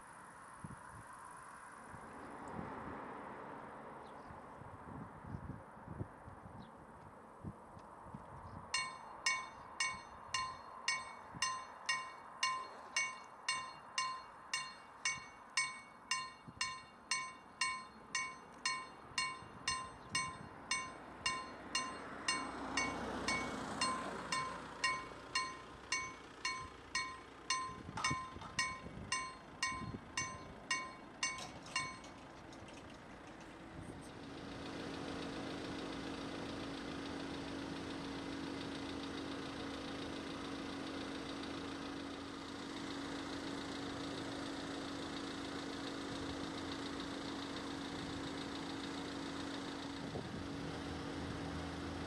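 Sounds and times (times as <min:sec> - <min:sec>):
level crossing warning bell ringing: 0:08.8 - 0:32.8.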